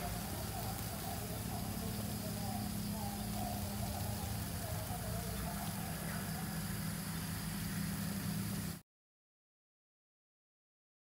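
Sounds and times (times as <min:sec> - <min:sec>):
low mechanical hum: 0:00.0 - 0:08.8.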